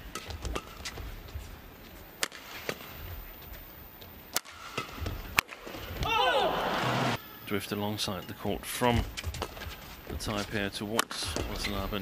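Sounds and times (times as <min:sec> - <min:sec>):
rackets hitting shuttlecock: 0:00.0 - 0:01.1, 0:02.2 - 0:07.2, 0:10.3 - 0:11.8.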